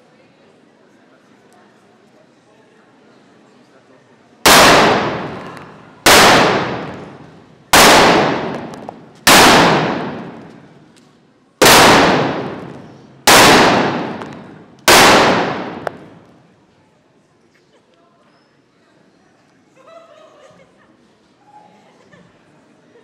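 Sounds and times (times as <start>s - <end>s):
paintballs exploding in a room: 4.5s - 10.6s, 11.6s - 16.2s.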